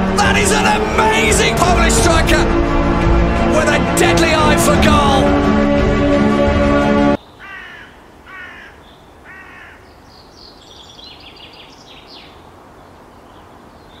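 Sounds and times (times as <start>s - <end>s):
crow cawing: 7.4s - 9.9s.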